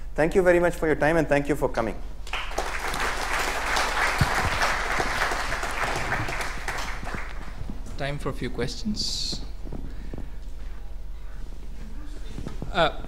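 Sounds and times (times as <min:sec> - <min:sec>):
audience applauding: 0:02.2 - 0:07.7.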